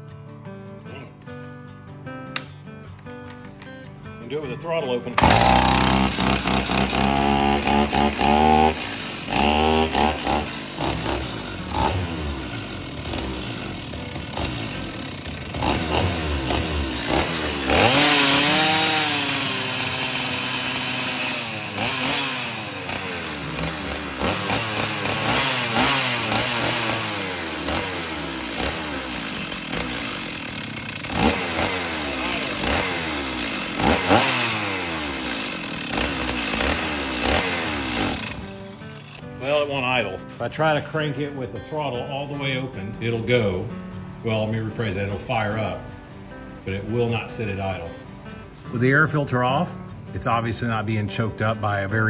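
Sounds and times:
chainsaw engine at full throttle: 5.2 - 39.3.

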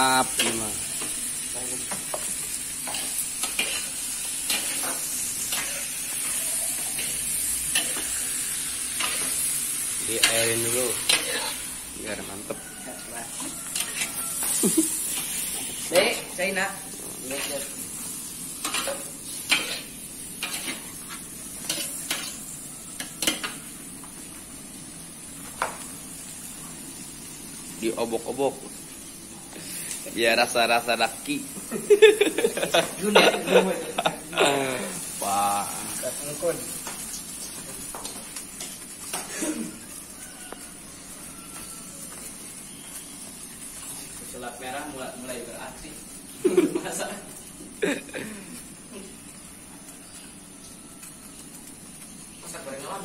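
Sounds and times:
food sizzling in a wok: 0.0 - 53.0
metal spatula scraping a pan: 2.8 - 9.5, 10.1 - 11.7, 13.3 - 16.2, 18.6 - 22.4.

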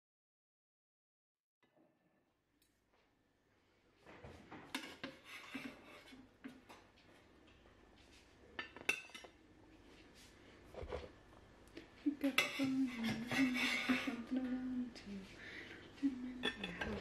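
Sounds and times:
metal tray and plate clatter: 12.3 - 14.3.

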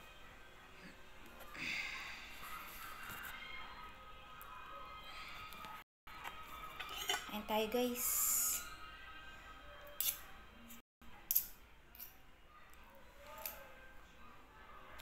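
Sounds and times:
cutlery scraping a plate: 6.7 - 7.3.

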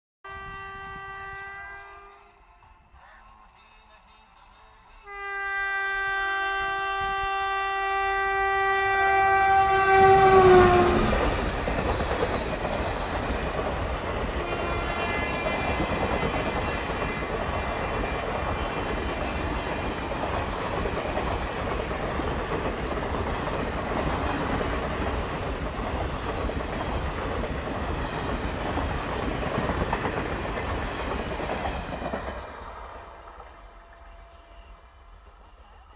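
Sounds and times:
train horn blast: 0.2 - 2.9, 4.4 - 11.3, 14.3 - 15.9, 33.1 - 35.2
train wheels rushing on rail: 2.4 - 35.9.

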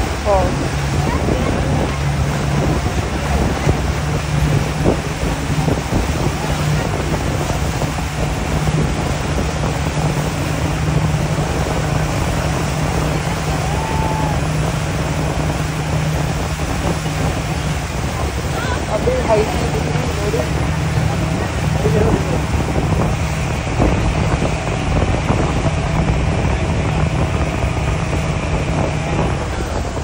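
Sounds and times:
boat engine running: 0.0 - 30.0
water rushing past hull: 0.0 - 30.0
wind buffeting microphone: 0.0 - 30.0.

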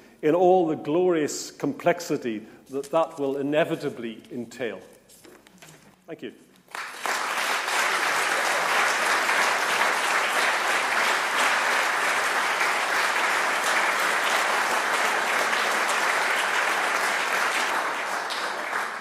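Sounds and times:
audience applauding: 6.7 - 19.0.

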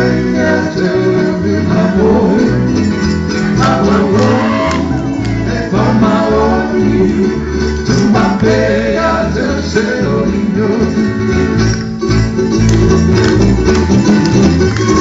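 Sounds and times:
person singing: 0.0 - 2.8, 3.6 - 11.2
strummed string instruments: 0.0 - 15.0.

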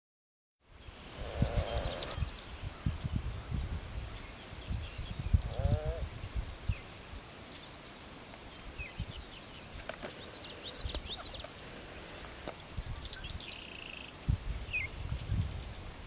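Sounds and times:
outdoor background noise: 0.6 - 16.0
high hiss: 1.0 - 2.3, 9.9 - 12.6
birds chirping and whistling: 1.3 - 2.5, 8.4 - 14.1.

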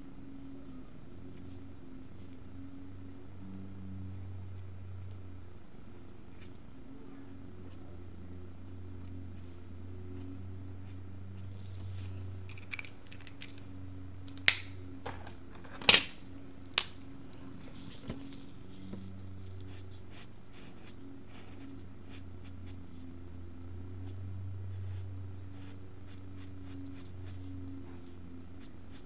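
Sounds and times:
marker tip scratching paper: 19.6 - 22.8, 24.7 - 29.0.

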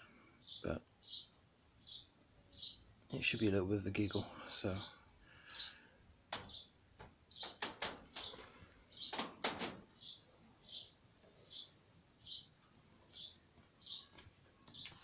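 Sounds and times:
small bird chirping: 0.4 - 9.3, 9.9 - 15.0
sharp clicks or knocks: 6.3 - 8.4, 9.1 - 9.9.

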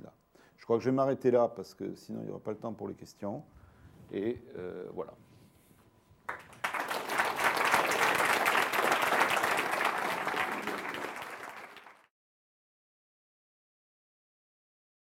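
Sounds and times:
audience applauding: 6.3 - 12.1.

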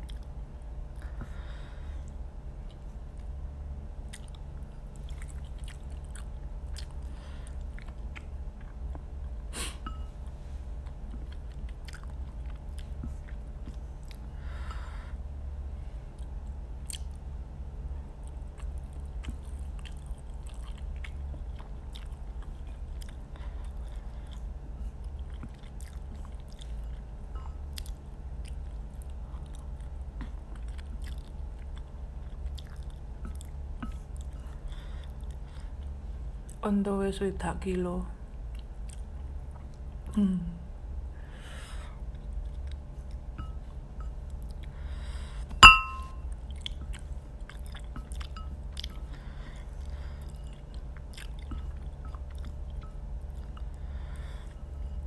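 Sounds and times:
person chewing noodles: 0.0 - 0.4, 4.0 - 15.0, 16.1 - 17.3, 18.2 - 36.0, 38.5 - 40.0, 42.0 - 45.4, 46.3 - 55.0
steady low hum: 0.0 - 55.0.

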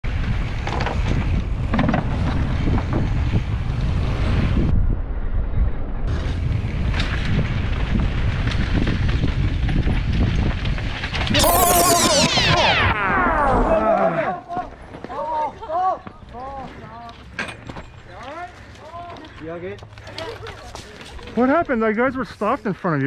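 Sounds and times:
tyres rumbling on dirt trail: 0.0 - 12.8, 13.8 - 23.0
wind buffeting microphone: 0.1 - 11.4
bike knocks and rattles: 0.5 - 3.5.

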